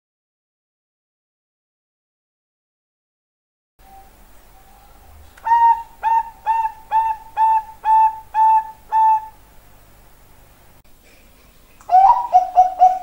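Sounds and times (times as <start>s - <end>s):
dove cooing: 3.8s - 9.4s, 11.9s - 13.0s.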